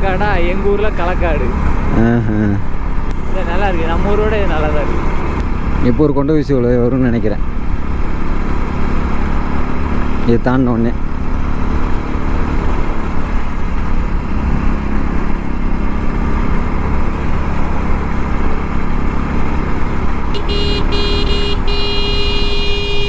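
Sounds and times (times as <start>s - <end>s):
wind and road noise: 0.0s - 23.0s
motorcycle engine running: 11.0s - 23.0s
motorcycle horn honking: 20.3s - 23.0s.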